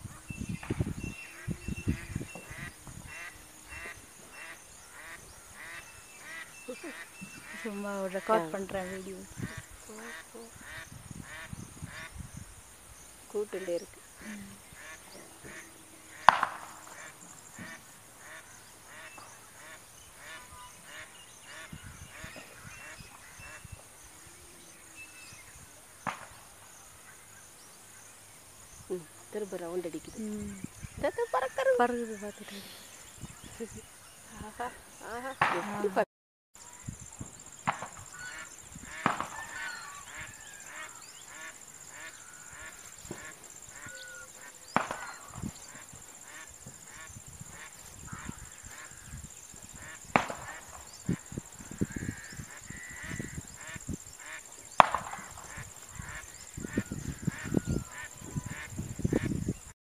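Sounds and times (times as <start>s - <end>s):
water birds calling: 0.0s - 59.8s
sharp knock: 16.3s - 16.8s.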